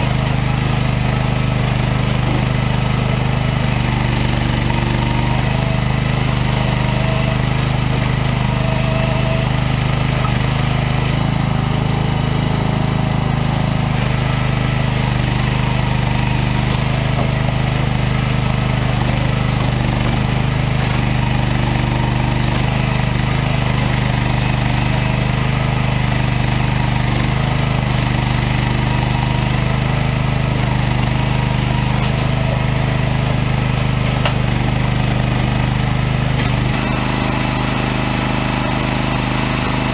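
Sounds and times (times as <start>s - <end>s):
machinery engine hum: 0.0s - 39.9s.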